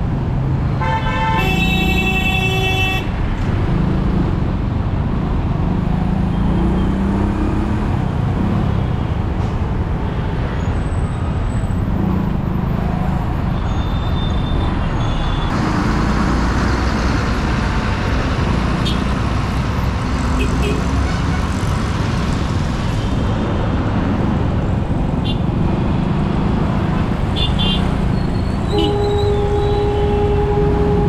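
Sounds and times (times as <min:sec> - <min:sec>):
road traffic rumble: 0:00.0 - 0:31.0
vehicle horn: 0:00.8 - 0:03.2, 0:28.7 - 0:31.0.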